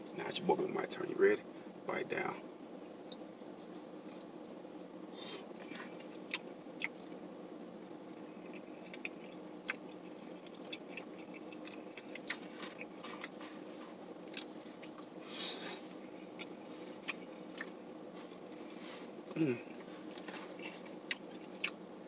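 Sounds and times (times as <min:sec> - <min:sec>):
steady low hum: 0:00.0 - 0:22.0
person chewing: 0:05.6 - 0:07.1, 0:08.3 - 0:18.6, 0:19.4 - 0:21.8.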